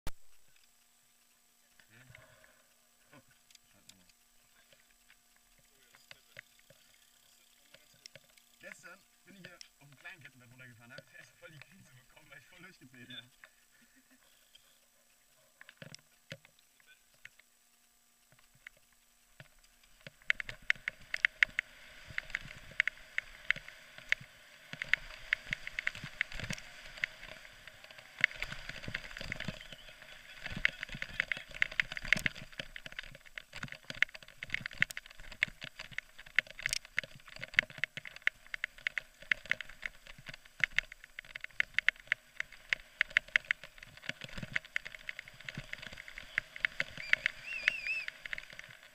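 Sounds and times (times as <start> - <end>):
mountain bike rattling over trail: 19.8 - 48.9.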